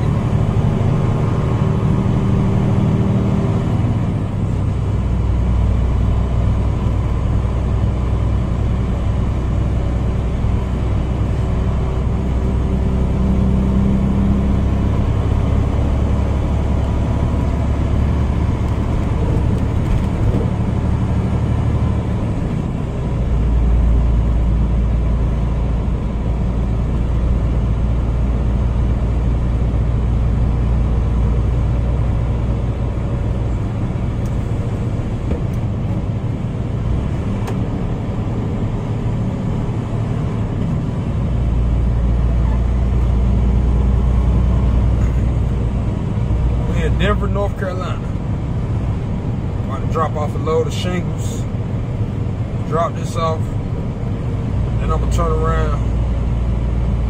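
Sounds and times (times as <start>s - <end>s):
diesel truck engine drone: 0.0s - 57.0s
road noise: 0.0s - 57.0s.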